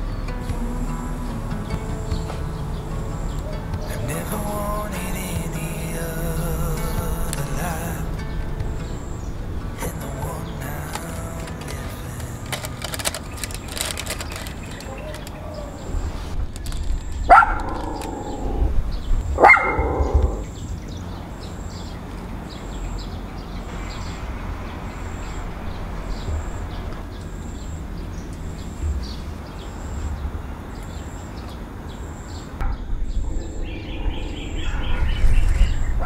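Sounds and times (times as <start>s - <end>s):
low rumble: 15.8s - 21.2s, 32.6s - 36.0s
dog barking: 17.3s - 18.3s, 19.4s - 20.4s.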